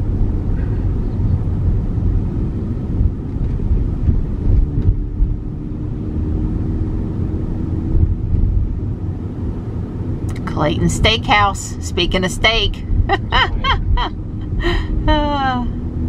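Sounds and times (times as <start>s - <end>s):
road and tyre rumble: 0.0s - 16.0s
faint steady hum: 10.3s - 15.8s.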